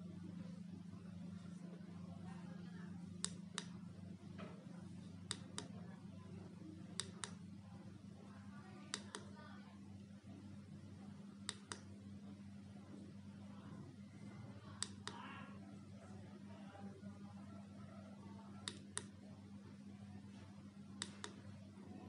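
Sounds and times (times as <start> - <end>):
low electrical hum: 0.0 - 22.0
sharp clicks: 8.9 - 9.3.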